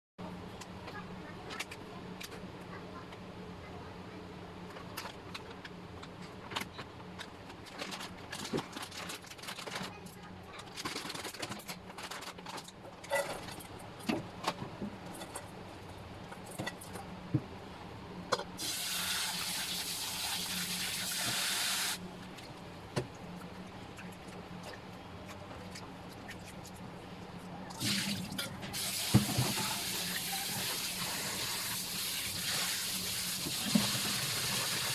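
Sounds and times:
plastic packet crinkling: 0:07.6 - 0:10.0, 0:10.6 - 0:12.8.

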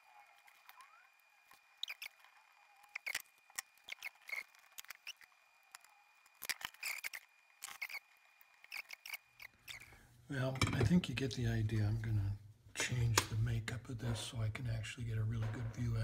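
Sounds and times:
flux crackling and squeaking: 0:00.0 - 0:10.0
faint high whine: 0:00.0 - 0:16.0.

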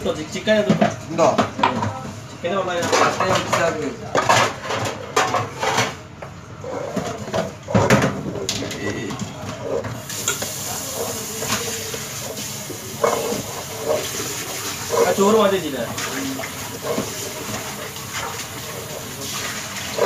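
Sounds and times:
faint voices: 0:06.7 - 0:17.9.

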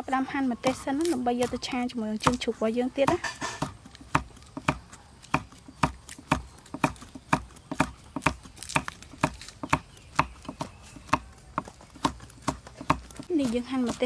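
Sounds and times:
knife knocking on wooden board: 0:03.0 - 0:04.8.

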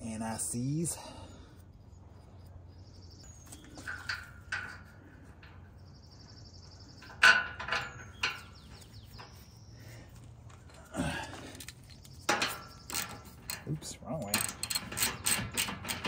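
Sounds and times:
bird chirping trills: 0:00.1 - 0:10.2, 0:11.8 - 0:15.8
metal bolts clicking and clinking: 0:03.5 - 0:05.9, 0:07.0 - 0:09.3, 0:11.4 - 0:16.0.

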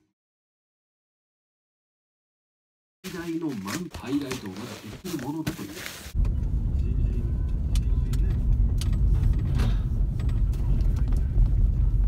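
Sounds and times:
car engine and road noise: 0:04.1 - 0:12.0.

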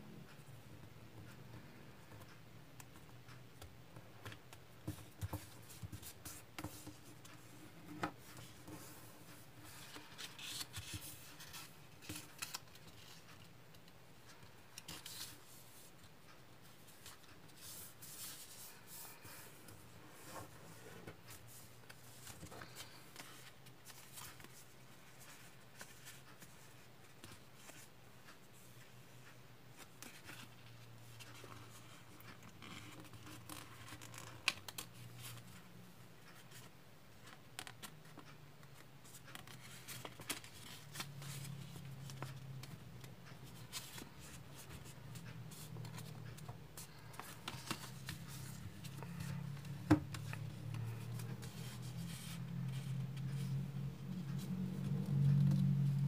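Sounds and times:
paper rustling and crinkling: 0:04.8 - 0:13.5, 0:39.0 - 0:53.6.

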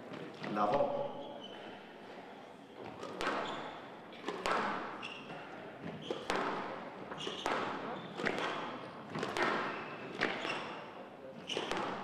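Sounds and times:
shoe squeaks: 0:00.8 - 0:01.8, 0:02.6 - 0:03.9, 0:05.0 - 0:06.4, 0:07.1 - 0:08.8, 0:09.4 - 0:12.0
squash ball hitting racquets and walls: 0:02.8 - 0:12.0.

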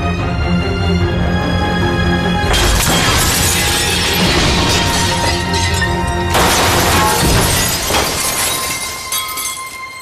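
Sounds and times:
dramatic music score: 0:00.0 - 0:10.0
glass door shattering: 0:02.5 - 0:10.0.

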